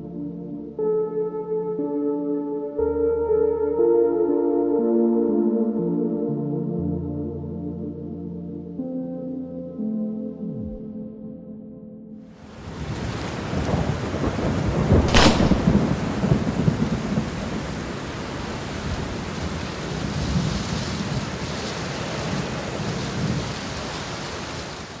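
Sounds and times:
steady rain: 0:12.4 - 0:25.0
rolling thunder: 0:12.8 - 0:21.4
sharp thunder crack: 0:14.9 - 0:17.3.

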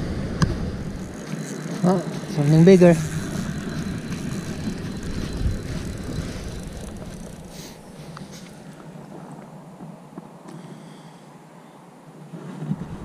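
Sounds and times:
fishing reel gears whirring: 0:00.8 - 0:08.8.

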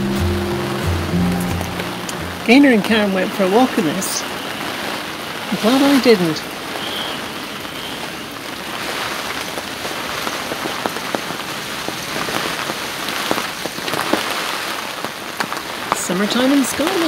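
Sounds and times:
heavy rain hissing: 0:00.0 - 0:17.0
raindrops ticking close by: 0:00.0 - 0:17.0.

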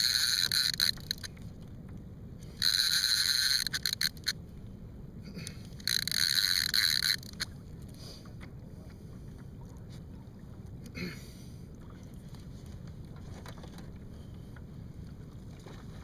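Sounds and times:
fishing reel buzzing: 0:00.0 - 0:01.3, 0:02.5 - 0:04.4, 0:05.8 - 0:07.5.

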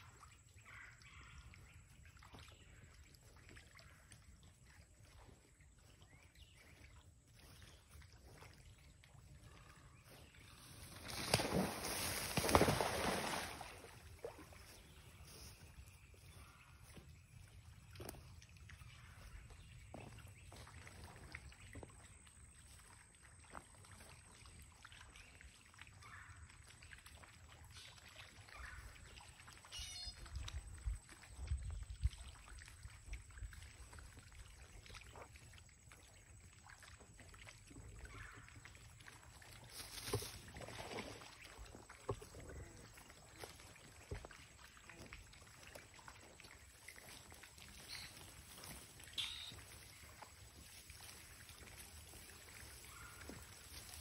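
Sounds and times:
feet swishing through tall grass: 0:10.0 - 0:16.9, 0:39.7 - 0:41.2, 0:47.1 - 0:54.0
wind rumble on microphone: 0:30.2 - 0:33.8
high chirps: 0:49.2 - 0:49.6.

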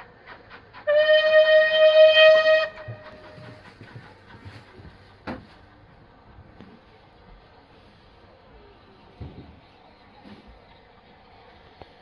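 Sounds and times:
train rumbling: 0:00.0 - 0:12.0
steam locomotive whistle: 0:00.8 - 0:03.5.

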